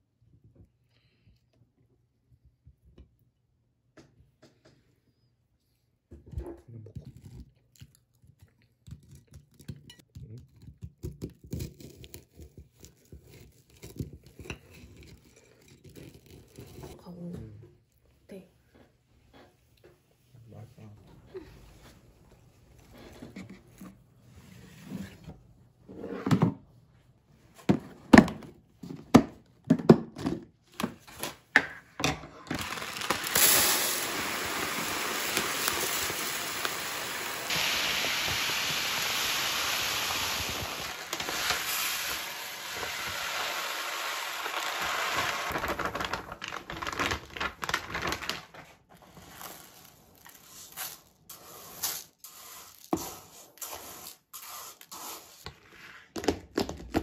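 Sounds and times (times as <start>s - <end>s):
plastic bin knocking and clicking: 27.7s - 31.0s
plastic cup scooping rice: 32.5s - 47.2s, 48.9s - 56.9s
rice pouring into bin: 32.5s - 48.3s, 49.0s - 55.3s.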